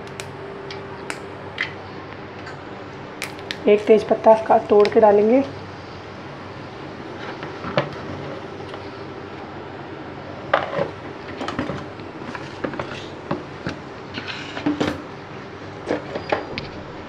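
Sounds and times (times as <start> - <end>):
sharp crackles and pops: 0.0 - 1.8, 3.2 - 3.9.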